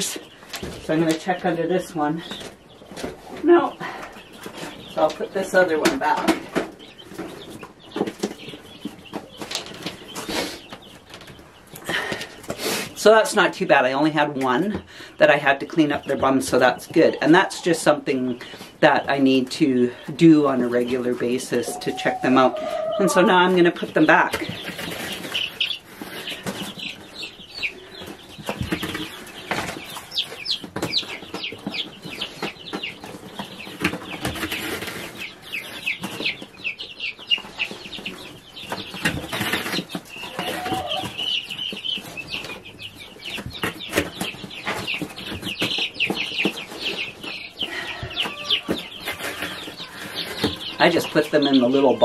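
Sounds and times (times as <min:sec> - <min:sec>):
chicks peeping: 0:00.0 - 0:52.0
knocks and rustles: 0:23.9 - 0:36.6.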